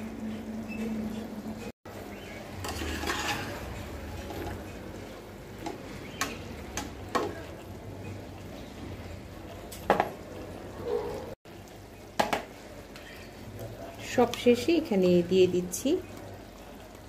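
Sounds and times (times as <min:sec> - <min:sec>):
curry sizzling: 0:00.0 - 0:17.0
spatula scraping through curry: 0:02.5 - 0:04.7.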